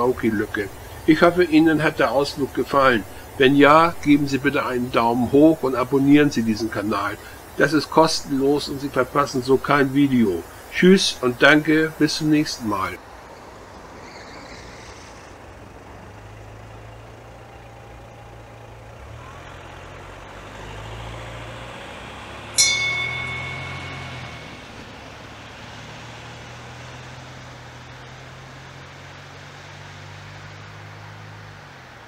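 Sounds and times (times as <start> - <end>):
distant diesel train engine hum: 0.0 - 32.0
high ringing sound: 22.6 - 25.2.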